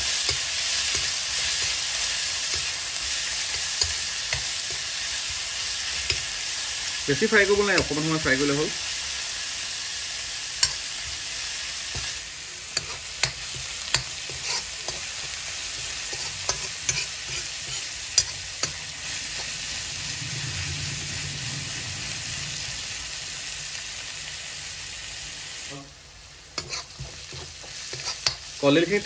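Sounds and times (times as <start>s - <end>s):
metal spoon scraping a pan: 0.0s - 8.3s, 10.6s - 11.2s, 11.9s - 20.5s, 26.6s - 28.6s
food sizzling in oil: 0.0s - 29.0s.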